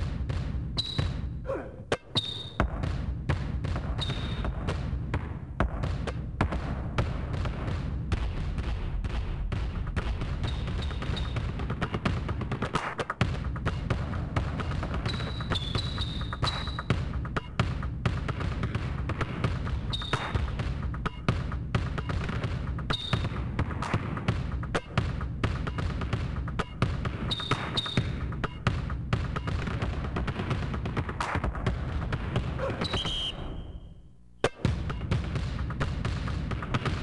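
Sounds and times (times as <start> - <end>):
basketballs bouncing on hard court: 0.0 - 33.4, 34.4 - 37.0
high squeaks: 10.4 - 11.4.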